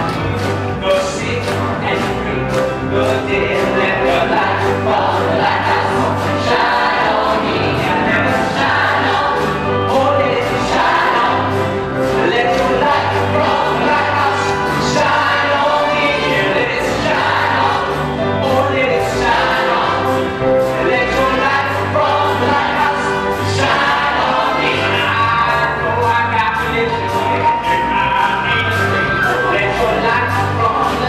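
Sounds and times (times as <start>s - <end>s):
repeating bass line: 0.0s - 31.0s
steady beat: 0.0s - 31.0s
choir singing: 2.9s - 26.4s.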